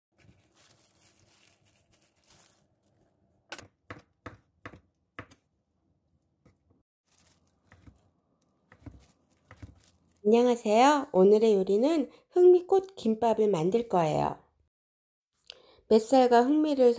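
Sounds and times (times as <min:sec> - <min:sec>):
knife chopping on cutting board: 0:03.5 - 0:05.4, 0:07.7 - 0:08.0, 0:08.7 - 0:09.8
knife slicing: 0:06.5 - 0:10.2.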